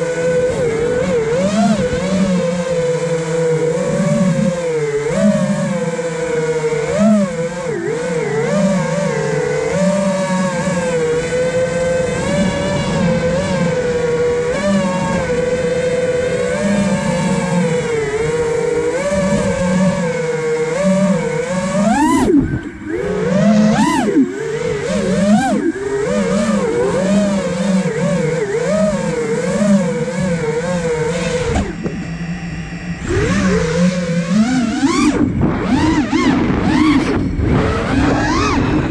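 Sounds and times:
drone motors whining: 0.0 - 38.9
drone hitting the ground: 31.3 - 38.9.

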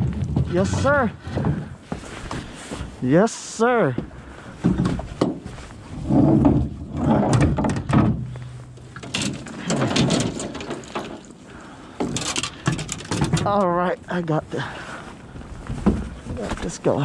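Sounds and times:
handling knocks and bumps: 0.0 - 2.5, 4.0 - 11.4, 12.0 - 13.9, 15.6 - 16.9.

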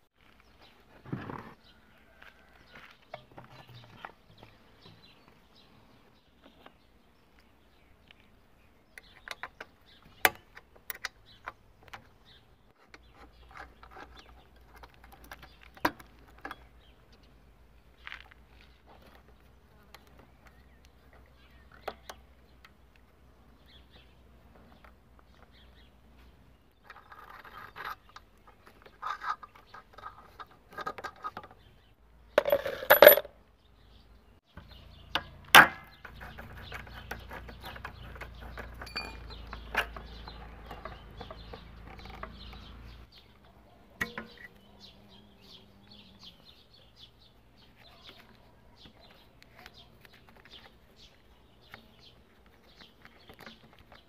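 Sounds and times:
metal tools clinking and knocking: 32.4 - 33.3, 38.8 - 39.3.

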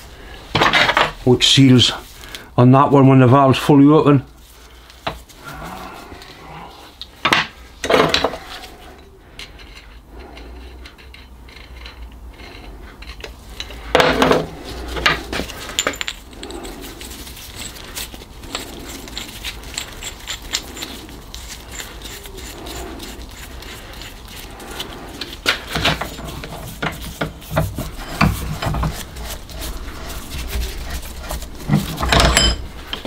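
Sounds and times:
metal parts clattering: 10.9 - 24.2, 24.8 - 33.0.

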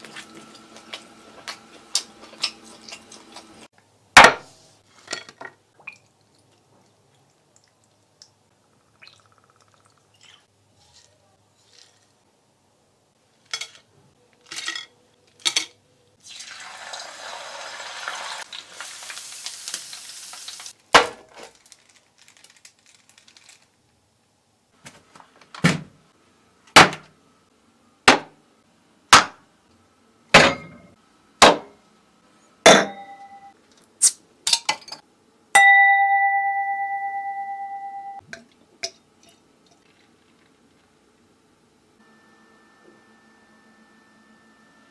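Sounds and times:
glassware knocks and clinks: 30.4 - 30.9, 32.7 - 33.4
ringing ding: 32.7 - 33.5, 35.6 - 38.2.

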